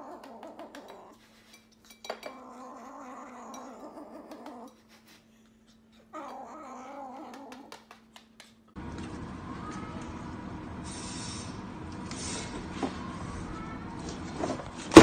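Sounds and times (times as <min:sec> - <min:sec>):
kitten growling: 0:00.0 - 0:01.2, 0:02.3 - 0:04.8, 0:06.1 - 0:07.8.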